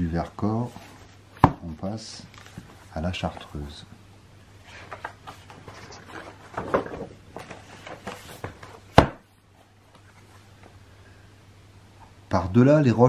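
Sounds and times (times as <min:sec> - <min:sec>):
handling knocks and rustles: 0:04.7 - 0:09.2.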